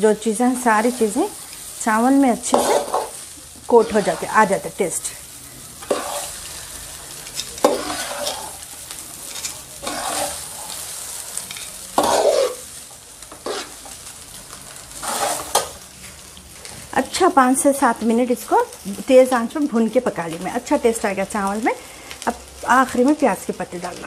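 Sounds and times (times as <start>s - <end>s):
rice sizzling in a pan: 0.0s - 24.0s
metal spatula scraping a pan: 0.5s - 1.7s, 2.3s - 4.6s, 5.4s - 14.0s, 14.9s - 15.8s.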